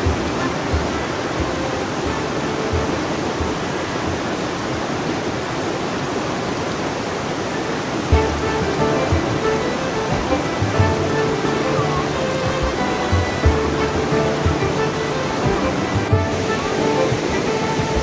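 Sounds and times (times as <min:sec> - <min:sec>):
stream rushing over boulders: 0:00.0 - 0:18.0.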